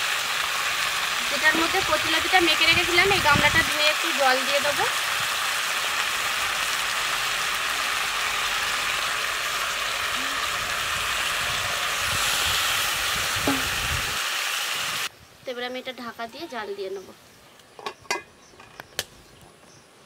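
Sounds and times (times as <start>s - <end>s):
vegetables sizzling in hot oil: 0.0s - 15.1s
water poured into hot oil: 0.0s - 15.1s.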